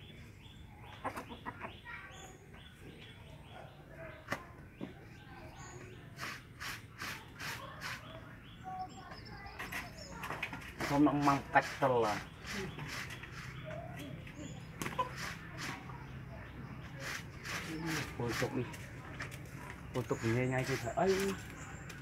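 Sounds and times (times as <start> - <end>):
chickens chirping and clucking: 0.0 - 22.0
quick rasping strokes: 6.2 - 8.2, 17.0 - 18.6.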